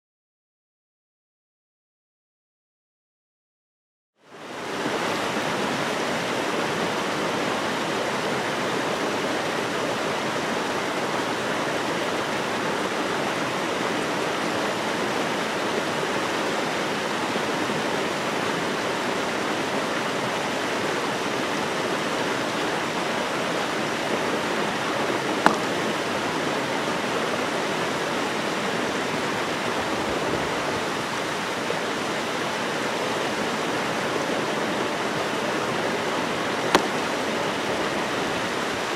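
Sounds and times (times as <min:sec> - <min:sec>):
water rushing over rocks: 0:04.4 - 0:38.9
sharp tap: 0:25.4 - 0:25.8, 0:36.7 - 0:37.0.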